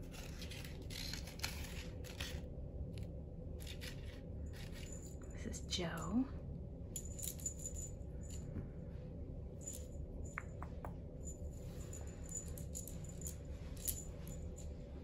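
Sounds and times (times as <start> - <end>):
cat toys jingling and rattling: 3.6 - 5.7, 6.9 - 8.5, 11.1 - 14.8.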